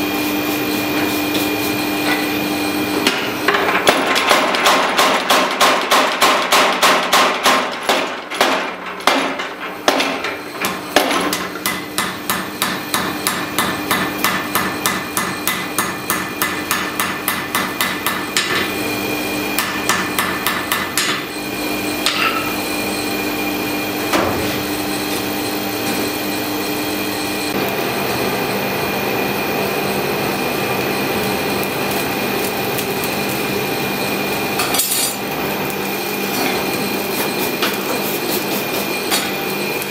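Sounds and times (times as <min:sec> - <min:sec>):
power hammer blows on hot steel: 0:03.0 - 0:18.9, 0:19.5 - 0:21.4
forge roaring steadily: 0:07.6 - 0:39.9.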